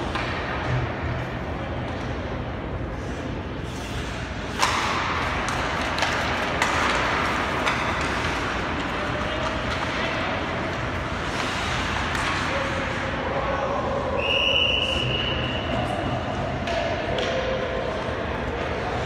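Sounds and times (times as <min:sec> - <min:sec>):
hockey sticks clacking on puck: 0:00.0 - 0:01.0, 0:03.7 - 0:13.5, 0:14.9 - 0:19.0
skates scraping ice: 0:02.7 - 0:14.2.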